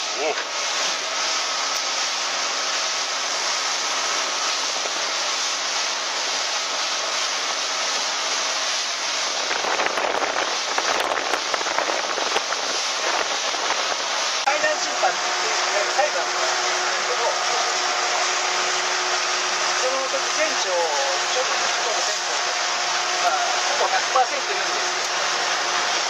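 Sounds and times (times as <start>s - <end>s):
boat engine hum: 0.0s - 26.0s
wind and spray over hull: 0.0s - 26.0s
low thumps and buffeting: 9.2s - 14.4s.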